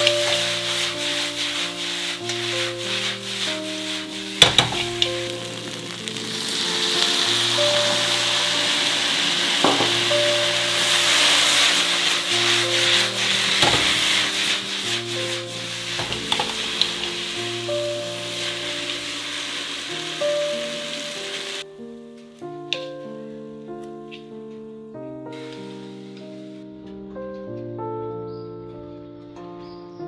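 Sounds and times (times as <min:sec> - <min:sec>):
noodles sizzling in a wok: 0:00.0 - 0:21.7, 0:25.2 - 0:26.5
wok knocking on stove: 0:09.6 - 0:11.1.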